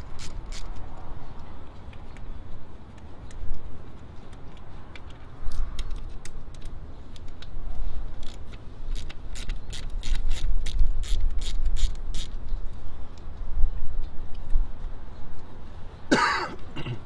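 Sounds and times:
hand ratchet clicking: 0.0 - 0.8, 8.2 - 12.4
wind rumble on microphone: 0.0 - 16.0.

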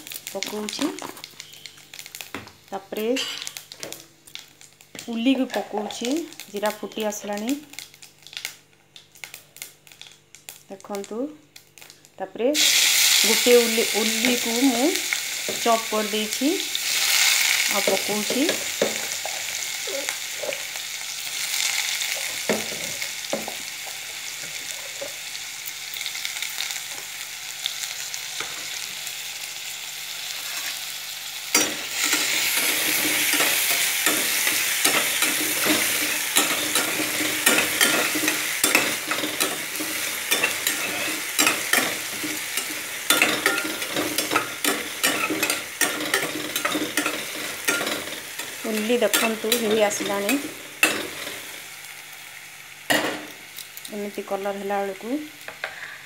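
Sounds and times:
onion sizzling in hot oil: 0.0 - 56.0
spatula scraping a pan: 31.9 - 51.4.

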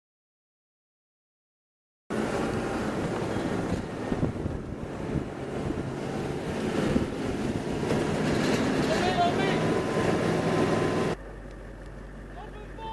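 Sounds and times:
wind buffeting microphone: 2.1 - 11.2.

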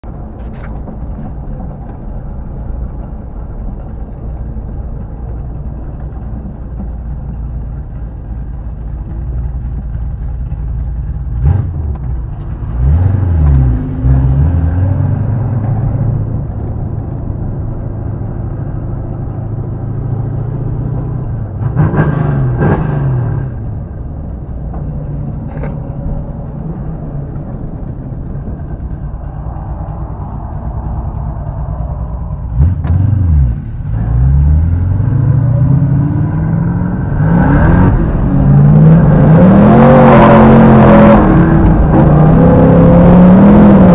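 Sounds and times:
car engine rumbling: 0.0 - 43.9
engine revving: 11.3 - 16.5, 18.2 - 23.6, 25.5 - 43.9.

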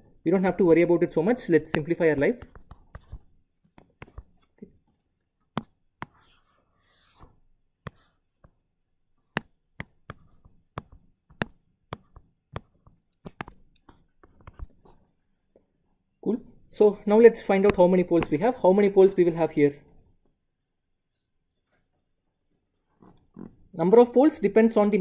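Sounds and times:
stylus tapping on tablet screen: 1.6 - 4.6, 5.5 - 8.6, 9.2 - 15.0.

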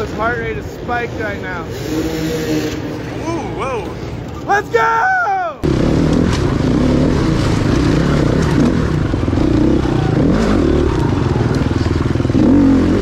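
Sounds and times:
dirt bike engine revving: 5.6 - 13.0.

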